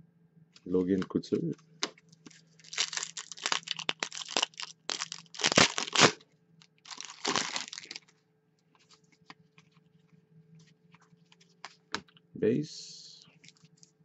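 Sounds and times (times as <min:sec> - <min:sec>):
card pack wrapper tearing and crinkling: 0:02.3 - 0:06.2, 0:06.8 - 0:08.1
cards clicking and rustling: 0:06.9 - 0:08.1.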